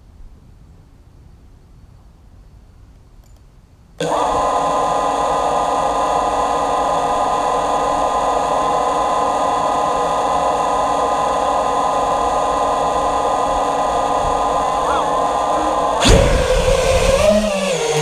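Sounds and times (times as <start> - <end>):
drone motors whining: 4.0 - 18.0.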